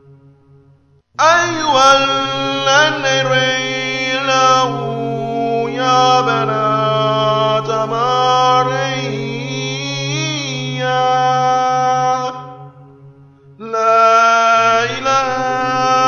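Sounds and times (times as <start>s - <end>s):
steady low drone: 0.0s - 16.0s
voice chanting long notes: 0.0s - 16.0s.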